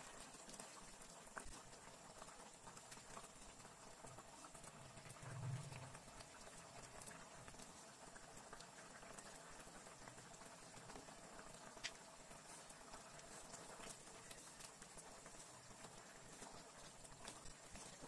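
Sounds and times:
sauce simmering with small pops: 0:00.0 - 0:18.0.

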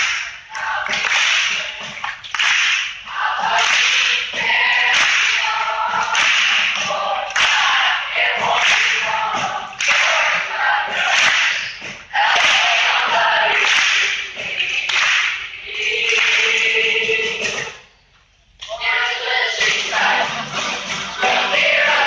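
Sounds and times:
mixed choir singing: 0:00.5 - 0:01.8, 0:03.1 - 0:11.4, 0:12.1 - 0:17.8, 0:18.7 - 0:22.0
acoustic guitars: 0:19.6 - 0:21.9.

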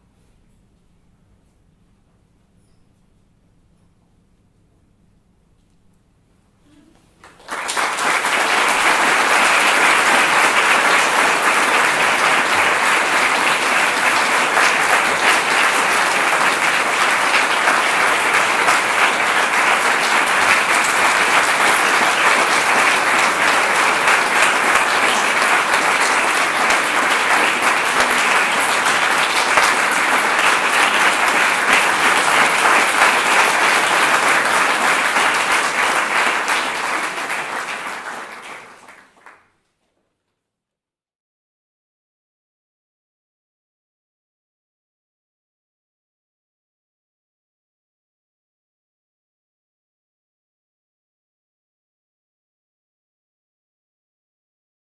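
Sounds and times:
audience applauding: 0:07.2 - 0:39.4.

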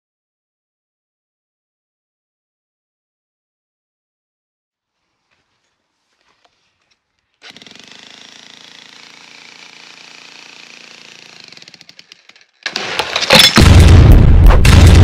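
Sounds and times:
breaker hammer rattling on brick: 0:10.2 - 0:13.6
loud booming with sharp hits: 0:12.9 - 0:15.0.

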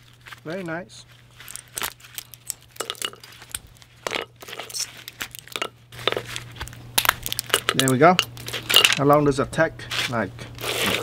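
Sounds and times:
battery cells crackling and clicking: 0:01.4 - 0:09.2.

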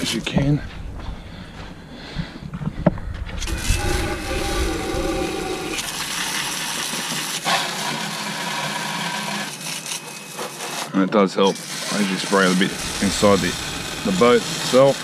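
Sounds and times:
hose spray hissing and splattering: 0:03.4 - 0:07.7.

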